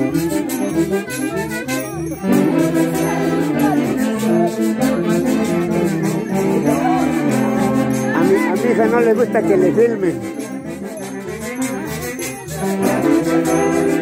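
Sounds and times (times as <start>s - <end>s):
jingling bells: 0.0s - 14.0s
live band with brass: 0.0s - 14.0s.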